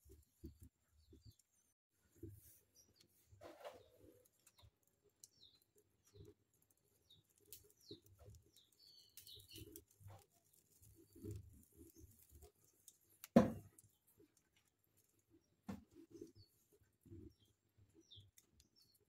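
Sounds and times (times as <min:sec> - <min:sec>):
wood fire crackling: 0:00.0 - 0:19.0
thump: 0:13.4 - 0:13.6.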